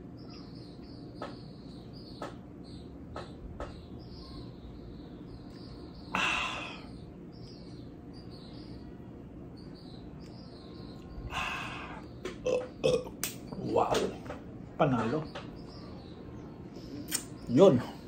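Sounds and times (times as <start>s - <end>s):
breathy exhales: 6.1s - 7.0s, 11.3s - 12.1s
burp: 12.4s - 13.2s
man gulping water: 12.4s - 13.2s.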